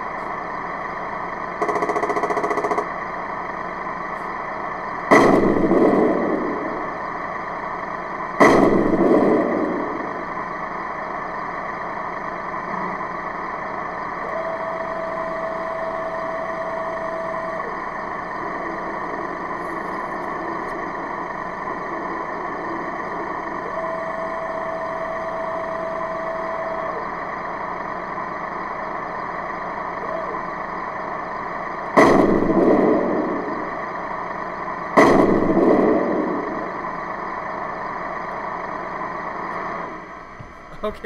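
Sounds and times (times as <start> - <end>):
simulated tank engine idling: 0.0 - 41.0
thin whining tone: 0.0 - 41.0.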